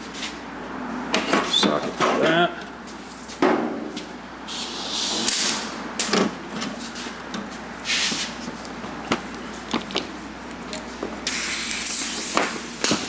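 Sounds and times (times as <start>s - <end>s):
compressed air hissing: 4.5s - 5.6s, 11.2s - 12.9s.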